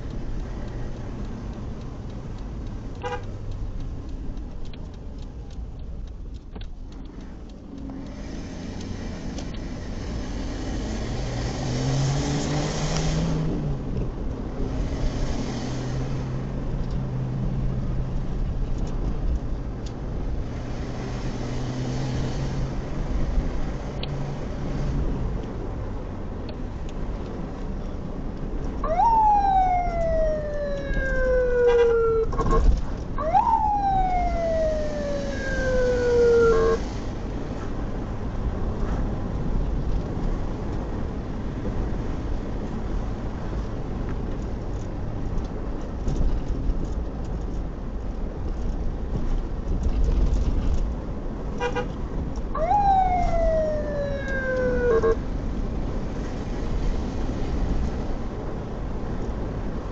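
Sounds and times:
vehicle engine and road noise: 0:00.0 - 0:59.9
ambulance siren whoops: 0:28.8 - 0:36.8, 0:52.6 - 0:55.2.

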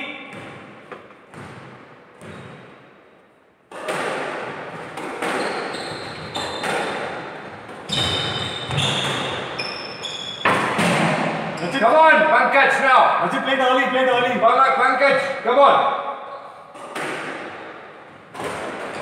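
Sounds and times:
squash ball hitting rackets and walls: 0:00.1 - 0:11.6, 0:15.1 - 0:19.0
shoes squeaking on wooden floor: 0:05.2 - 0:07.0, 0:07.8 - 0:10.6.

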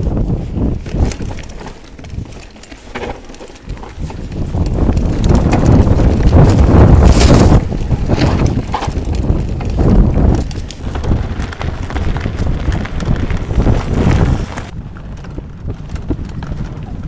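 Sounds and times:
mountain bike rattling on rough trail: 0:00.0 - 0:17.0
tyres rumbling: 0:00.6 - 0:14.7.

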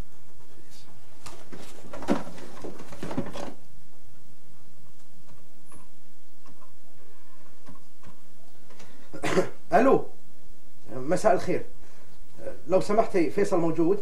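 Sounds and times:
steady hiss and hum: 0:00.0 - 0:14.0.

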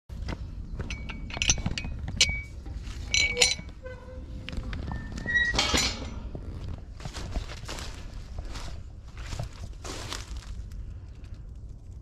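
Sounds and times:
low steady rumble: 0:00.1 - 0:12.0
footsteps through dry undergrowth: 0:06.2 - 0:11.3
twigs snapping: 0:07.0 - 0:12.0.

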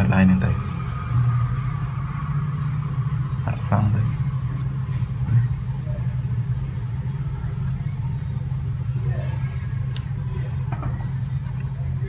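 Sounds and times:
low hum: 0:00.0 - 0:12.0
pencil scratching on paper: 0:02.1 - 0:10.2, 0:10.8 - 0:12.0.

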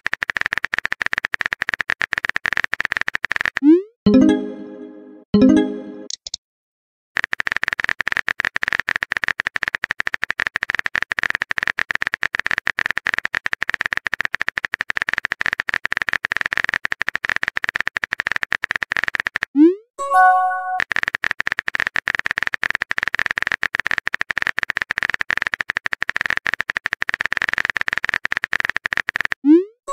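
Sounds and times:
keyboard typing clicks: 0:05.4 - 0:06.4, 0:20.1 - 0:21.0.

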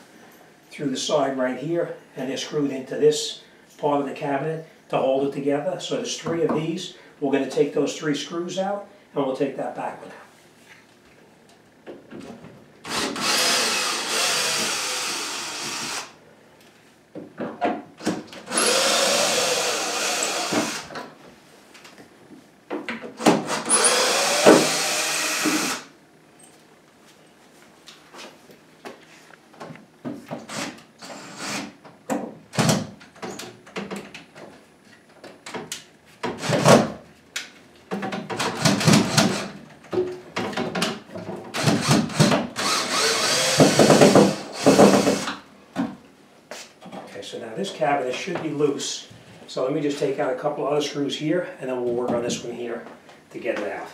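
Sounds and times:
cordless drill motor: 0:12.9 - 0:16.1, 0:18.5 - 0:20.9, 0:23.5 - 0:25.9, 0:41.6 - 0:45.4.

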